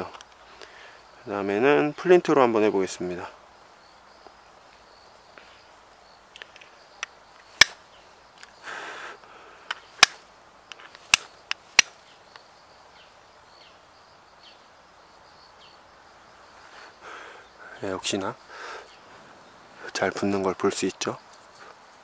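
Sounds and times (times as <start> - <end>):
steel striker clicking on flint: 6.4 - 7.8, 9.7 - 12.0.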